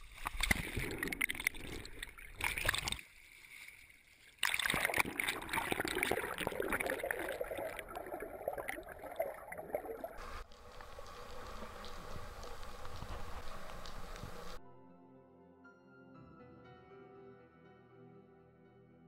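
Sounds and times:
underwater rush: 0.0 - 14.6
water splashing and gurgling: 0.0 - 14.6.

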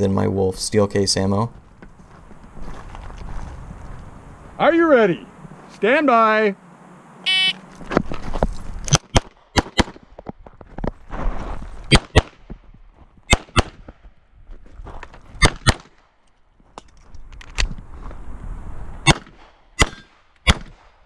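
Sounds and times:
pistol shots: 8.9 - 10.0, 11.9 - 12.4, 13.3 - 13.8, 15.4 - 16.1, 19.0 - 20.9.

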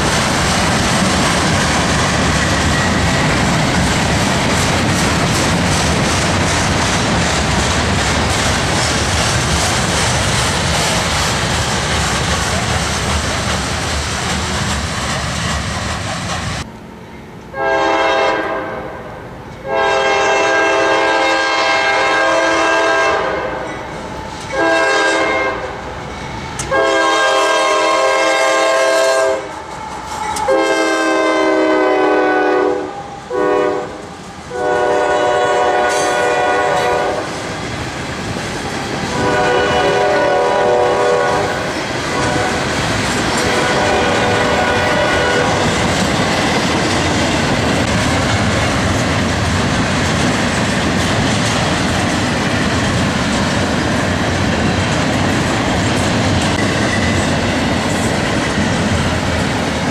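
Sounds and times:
train rumbling: 0.0 - 59.9
locomotive horn blasts: 17.5 - 23.7, 24.5 - 25.8, 26.6 - 37.3, 39.1 - 42.6, 43.4 - 45.8.

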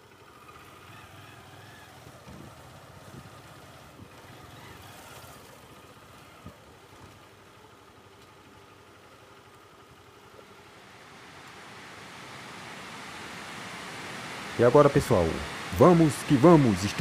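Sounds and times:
small motorcycle engine running: 0.0 - 11.2.

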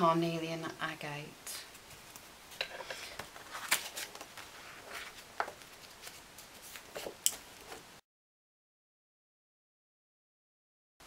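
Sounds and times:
paper rustling: 1.6 - 7.8.

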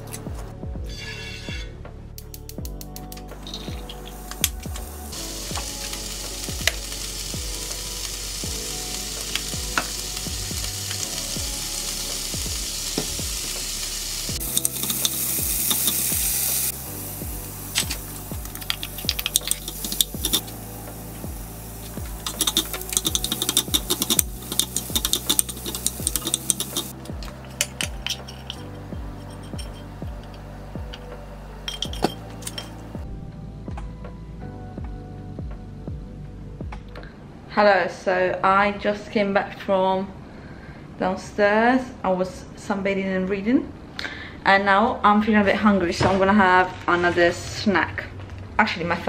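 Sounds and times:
vegetables sizzling in a pan: 3.6 - 27.0
utensil scraping pan: 22.3 - 27.0.

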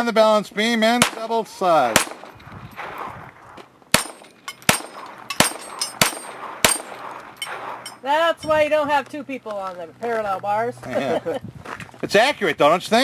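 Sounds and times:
bullets striking steel targets: 0.9 - 2.4, 3.9 - 8.0
gunshots: 0.9 - 3.2, 3.9 - 8.0.

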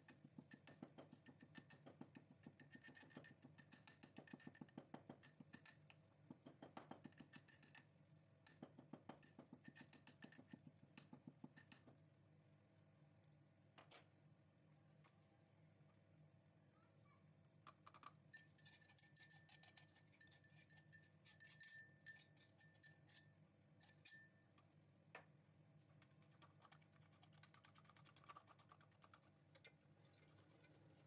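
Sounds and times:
spoon tapping in steel cup: 0.0 - 12.0, 17.7 - 24.4
spoon stirring in plastic bowl: 17.9 - 24.2, 26.0 - 31.0.

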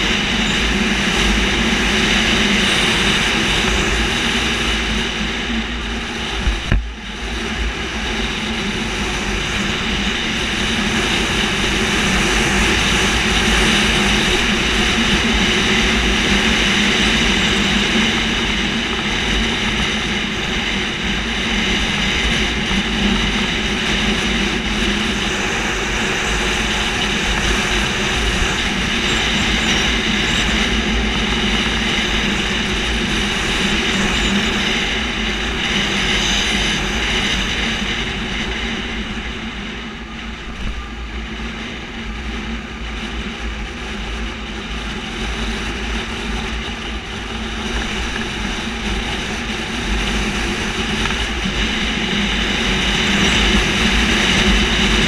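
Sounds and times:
motorcycle engine running: 0.0 - 41.0
wind rumble on microphone: 0.0 - 55.0.

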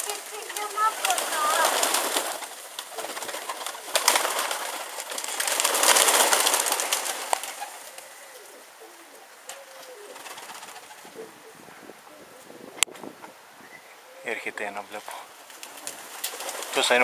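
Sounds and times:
rustling hiss with clicks: 0.0 - 11.2, 14.6 - 17.0
pigeons cooing: 0.0 - 12.8, 13.6 - 17.0.

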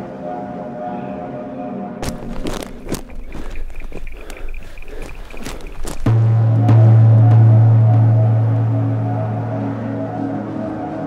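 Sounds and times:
deep low drone: 2.0 - 11.0
faint wavering higher tones: 6.3 - 11.0.

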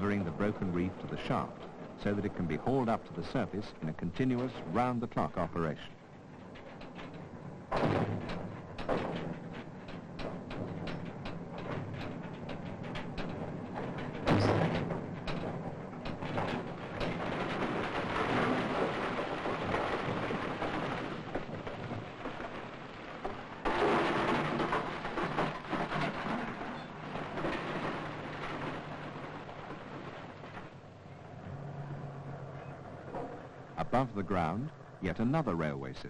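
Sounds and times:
ore machinery rumble and clatter: 0.0 - 36.0
sharp knocks: 6.4 - 30.8
heavy crash: 7.7 - 9.8, 10.4 - 30.8.

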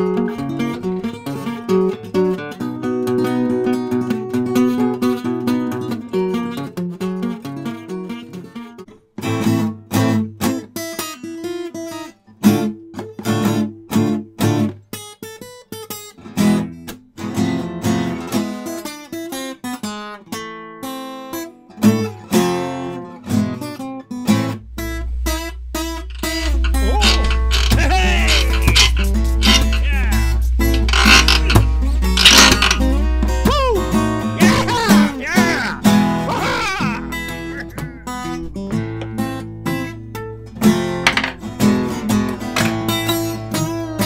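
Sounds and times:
acoustic guitar music: 0.0 - 44.0
low steady rumble: 24.4 - 34.6.

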